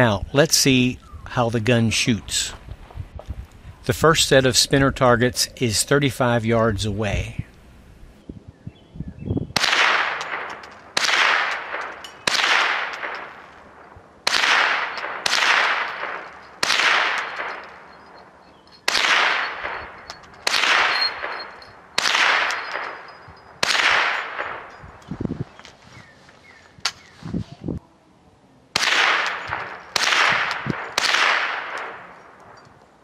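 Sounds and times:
rifle shots with echo: 9.6s - 18.1s, 18.8s - 24.8s, 28.8s - 32.6s.

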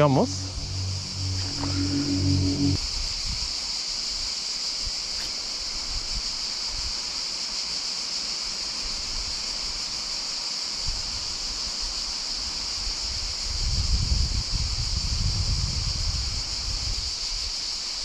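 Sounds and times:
wind rumble on microphone: 0.0s - 3.4s, 13.2s - 17.2s
cicada chorus buzzing: 0.0s - 18.0s.

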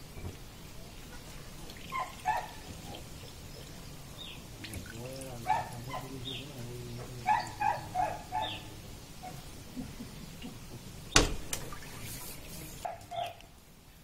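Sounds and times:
dog barking: 1.9s - 2.7s, 5.4s - 6.5s, 7.2s - 9.5s, 12.8s - 13.5s
sharp knock: 11.2s - 11.6s.

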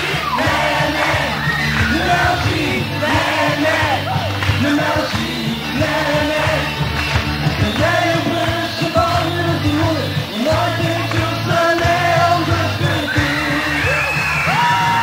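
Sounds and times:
bass guitar: 0.0s - 15.0s
drums: 0.0s - 15.0s
electric guitars: 0.0s - 15.0s
person singing: 7.6s - 15.0s.

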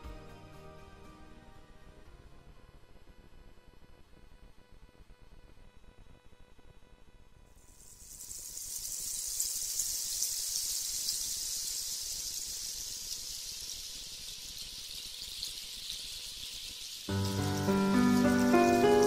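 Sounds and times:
rushing water hiss: 7.7s - 19.0s.

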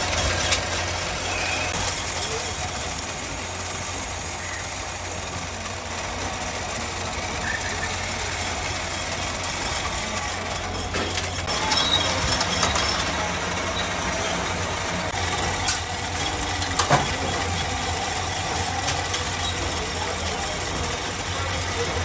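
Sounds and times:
metal lathe humming: 0.0s - 6.2s, 13.3s - 16.6s
sharp metallic clicks: 1.7s - 5.4s.

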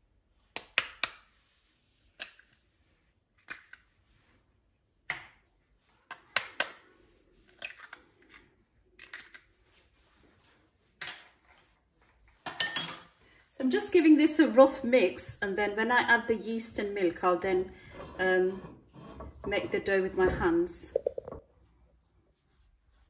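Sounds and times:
eggshells cracking: 7.5s - 9.4s.

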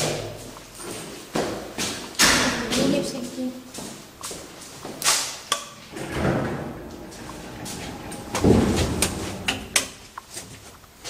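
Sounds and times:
door banging shut: 5.9s - 10.0s
short low rumble: 6.0s - 9.8s.

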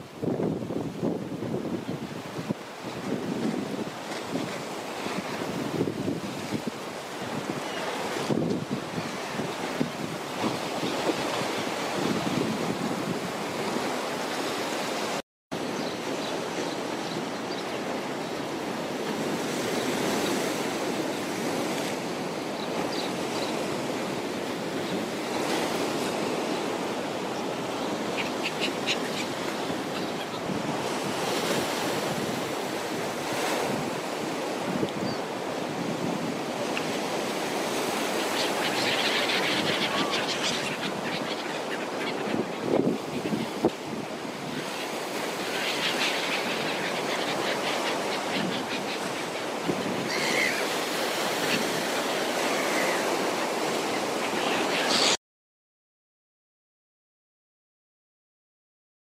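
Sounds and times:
wind on microphone: 0.0s - 14.0s, 28.8s - 55.1s
waves breaking on shore: 0.0s - 55.2s.

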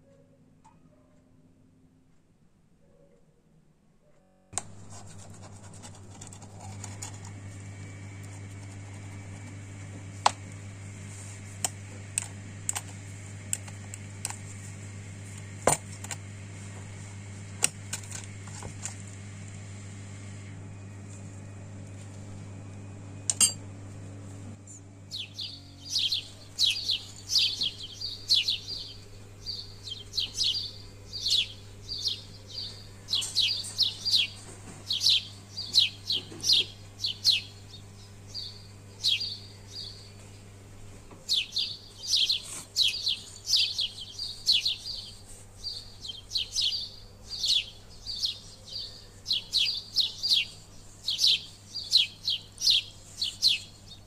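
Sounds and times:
bird chirping: 24.7s - 40.4s, 41.3s - 54.0s.

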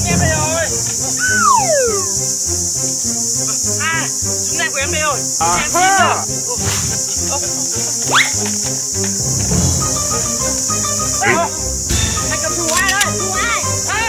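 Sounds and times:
falling glide: 0.0s - 2.3s
quick chirping glides: 0.0s - 3.1s
background music with bass notes: 0.0s - 14.0s
high-pitched insect drone: 0.0s - 14.0s.

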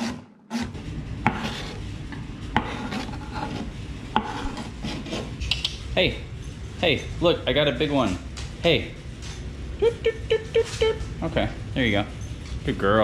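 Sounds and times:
rubbing and scraping: 0.7s - 5.6s.

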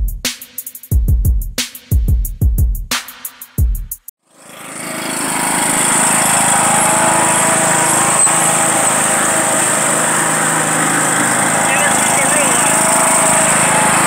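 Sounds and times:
riding mower engine running: 4.2s - 14.0s.

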